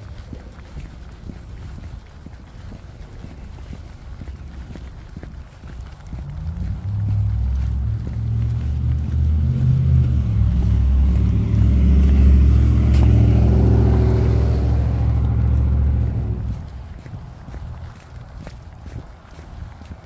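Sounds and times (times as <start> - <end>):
vehicle engine passing: 6.0 - 18.2.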